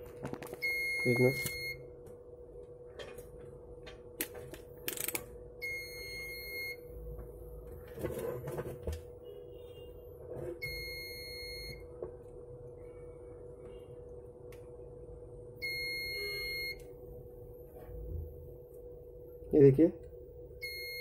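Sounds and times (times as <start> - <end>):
faint steady hum: 0.0 - 21.0
alarm beeps: 0.6 - 1.8, 5.6 - 6.9, 10.6 - 11.8, 15.6 - 16.8, 20.6 - 21.0
multimeter probes clicking: 4.2 - 5.3.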